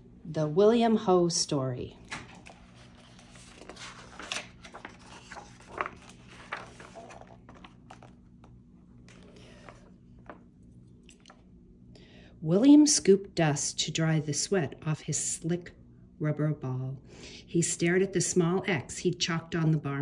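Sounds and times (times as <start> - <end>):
faint steady hum: 0.0 - 20.0
book pages rustling: 2.0 - 10.5.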